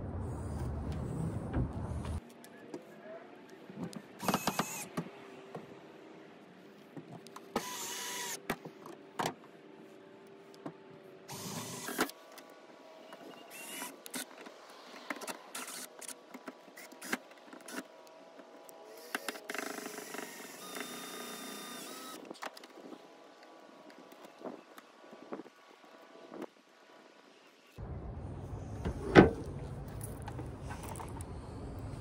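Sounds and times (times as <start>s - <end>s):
cordless drill whining: 7.6s - 8.4s, 19.0s - 22.2s.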